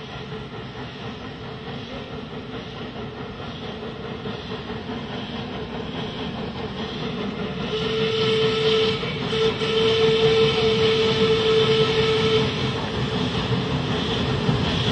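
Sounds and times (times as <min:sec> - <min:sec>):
steam locomotive and train running: 0:00.0 - 0:14.9
locomotive whistle: 0:07.6 - 0:12.8.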